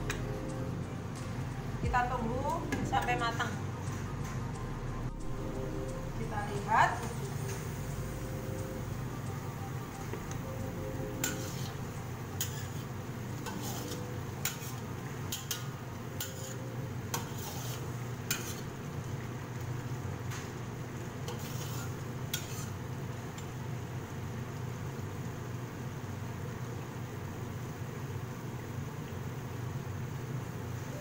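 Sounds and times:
low hum: 0.0 - 17.0
ladle scraping in wok: 11.2 - 18.7, 21.2 - 22.8.

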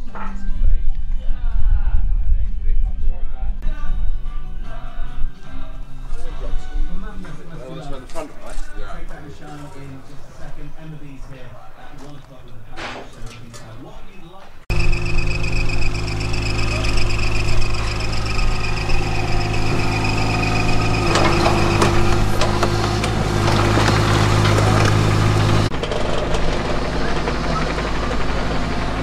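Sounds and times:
high steady whine: 14.7 - 25.7
excavator diesel engine: 14.7 - 29.0
scraping and clatter: 15.6 - 28.4.

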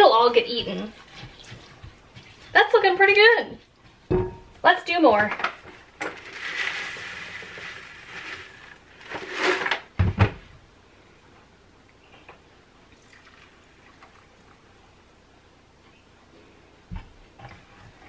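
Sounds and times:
grain pouring into a bowl: 6.2 - 9.7.

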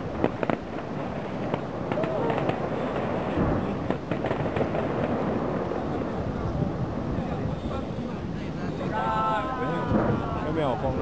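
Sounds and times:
distant fireworks bangs: 0.0 - 8.2
steady background hiss: 0.0 - 11.0.

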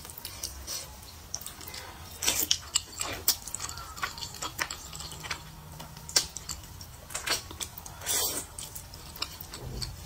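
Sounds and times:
person slurping noodles: 8.0 - 8.6.

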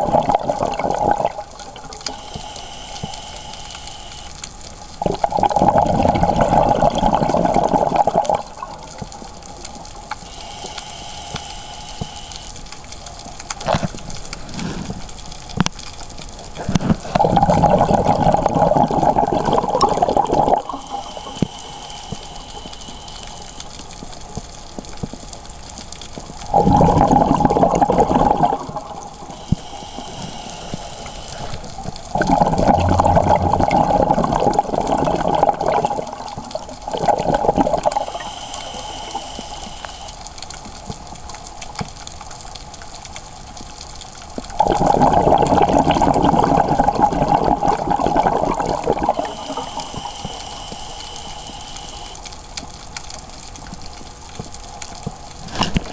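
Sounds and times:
bubbling rushes of exhaled air: 0.0 - 4.1, 5.0 - 9.2, 16.5 - 23.4, 26.4 - 39.9, 44.5 - 52.2
faint hissing whistle inhale: 2.0 - 4.4, 10.2 - 12.6, 20.6 - 24.0, 29.3 - 31.8, 38.0 - 40.3, 49.1 - 52.3.

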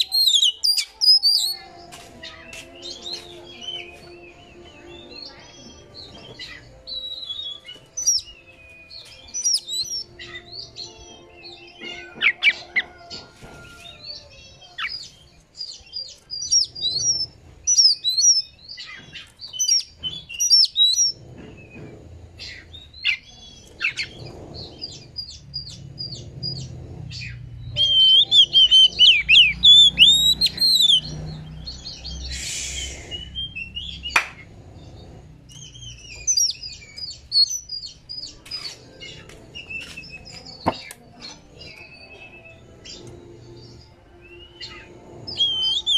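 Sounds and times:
bird singing whistled phrases: 0.0 - 1.6, 27.7 - 31.1
harsh hissing burst: 32.2 - 33.4.

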